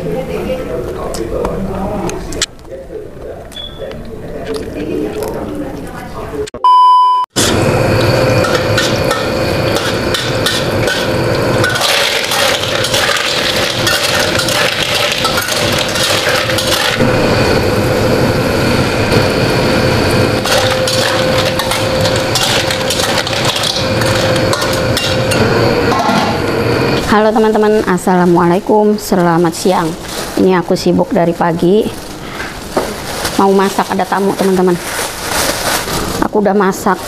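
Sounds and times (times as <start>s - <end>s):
food frying in oil: 7.4s - 25.9s
steady hum: 7.4s - 35.6s
metal spatula scraping a wok: 8.4s - 17.0s, 20.4s - 26.4s.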